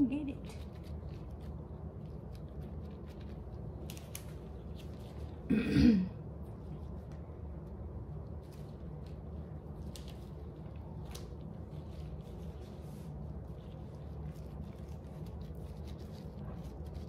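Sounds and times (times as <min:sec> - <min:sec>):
woman clearing throat: 0:05.5 - 0:06.2.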